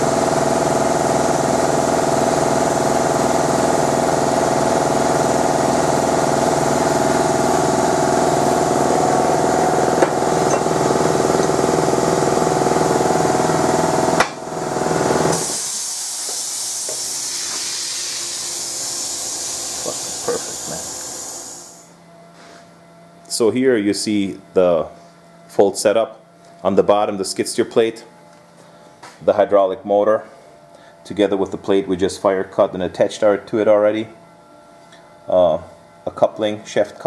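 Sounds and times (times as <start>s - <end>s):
machinery droning with rhythmic pulse: 0.0s - 37.0s
air hiss: 15.3s - 21.9s.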